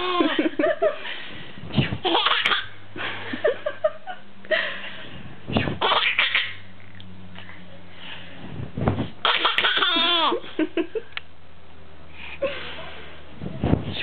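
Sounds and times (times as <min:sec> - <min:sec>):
baby giggling: 0:00.0 - 0:00.4, 0:02.0 - 0:02.8, 0:05.8 - 0:06.6, 0:09.2 - 0:10.4.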